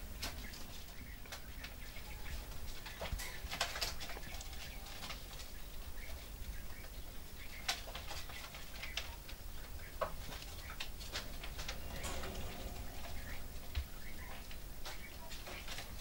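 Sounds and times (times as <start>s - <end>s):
chicks rustling in shavings: 0.0s - 16.0s
steady low hum: 8.7s - 16.0s.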